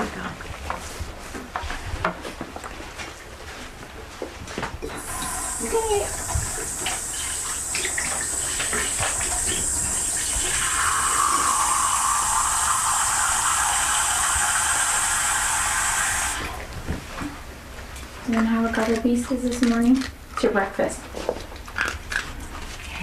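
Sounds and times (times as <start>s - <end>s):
water running from a tap: 5.0s - 16.7s.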